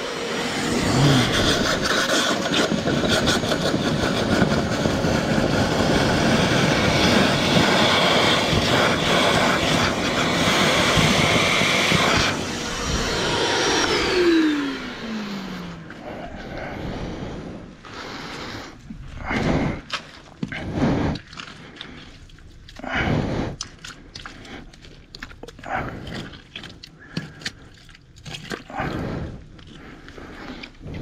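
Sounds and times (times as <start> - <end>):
vacuum motor winding down: 0.0 - 17.6
vacuum sucking water: 0.0 - 31.0.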